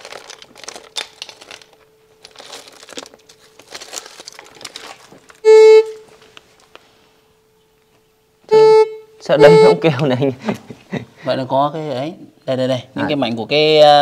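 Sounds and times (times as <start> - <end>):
metal detector beep: 5.4 - 6.0, 8.5 - 10.0
metal detector hum: 8.5 - 10.0.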